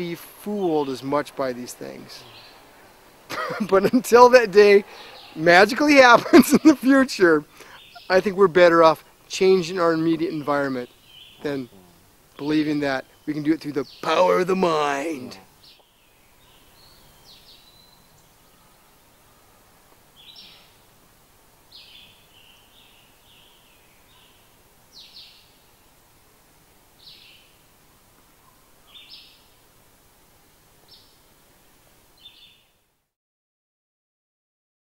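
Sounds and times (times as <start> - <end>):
birds chirping: 0.0 - 19.4, 20.1 - 20.9, 21.7 - 25.8
faint background hiss: 0.0 - 33.2.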